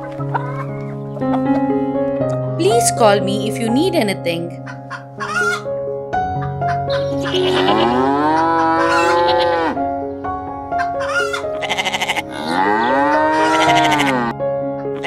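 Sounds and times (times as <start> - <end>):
background music: 0.0 - 15.0
sheep bleating: 7.1 - 9.8, 11.1 - 14.3.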